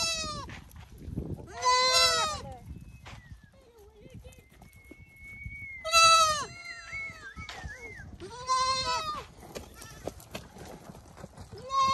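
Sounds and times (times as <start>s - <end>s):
goats and sheep bleating: 0.0s - 0.5s, 1.4s - 2.6s, 5.8s - 7.2s, 8.2s - 10.3s, 11.6s - 11.9s.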